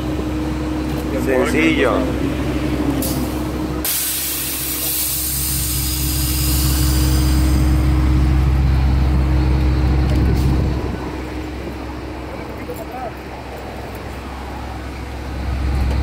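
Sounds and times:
diesel engine idling: 0.0 - 16.0
compressed air hissing: 3.0 - 8.0.

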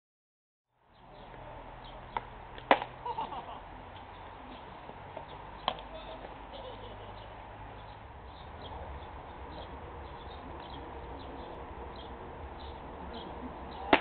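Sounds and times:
baseball smacking into mitt: 2.6 - 2.9.

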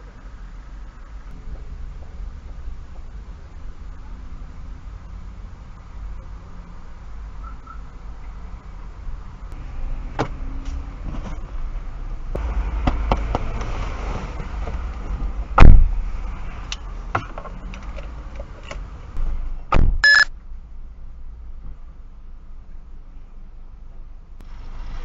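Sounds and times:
low rumble: 0.0 - 10.0
knocks and thumps inside car: 19.7 - 20.0
short electronic beep: 20.0 - 20.3.

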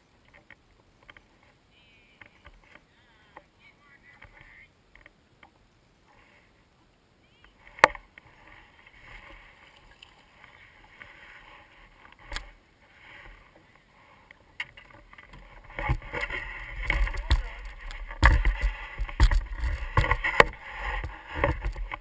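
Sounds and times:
faint hiss: 0.0 - 22.0
rustling: 7.4 - 22.0
knocks in a boat: 15.8 - 22.0.

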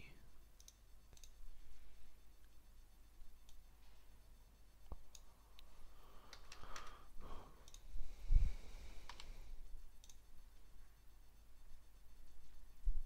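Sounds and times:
computer mouse clicks: 0.6 - 1.4, 3.4 - 3.6, 4.8 - 7.0, 7.6 - 7.9, 9.0 - 9.4, 10.0 - 10.3.

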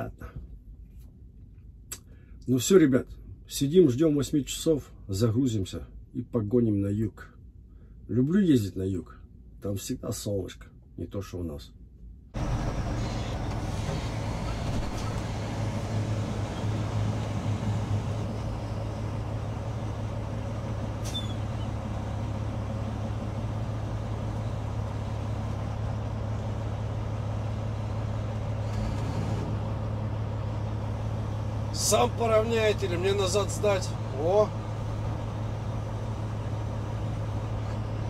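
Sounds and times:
heavy diesel engines droning: 12.4 - 38.0.

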